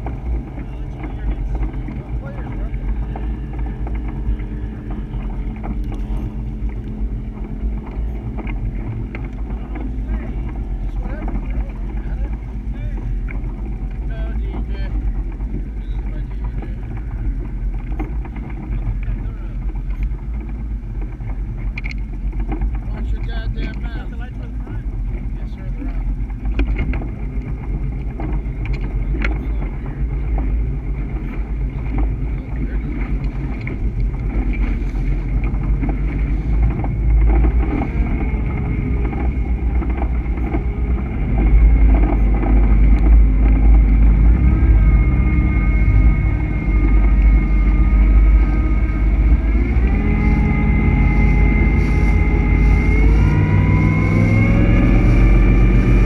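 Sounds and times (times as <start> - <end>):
boat engine droning: 0.0 - 56.0
hull slapping waves: 0.0 - 56.0
water rushing along hull: 0.0 - 56.0.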